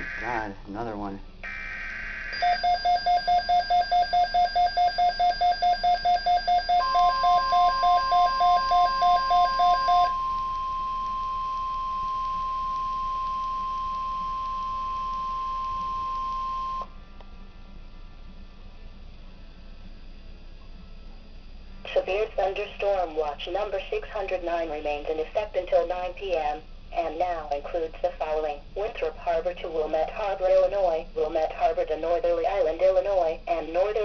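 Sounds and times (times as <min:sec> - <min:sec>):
rapid pulsing alert beeps: 0:00.0 - 0:00.5, 0:01.5 - 0:10.3
digital data burst: 0:00.0 - 0:00.6
steady warning alarm tone: 0:00.0 - 0:16.9.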